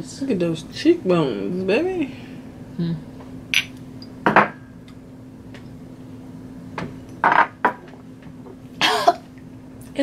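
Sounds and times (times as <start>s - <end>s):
faint steady hum: 0.0s - 10.0s
cup set down on table: 4.3s - 4.6s.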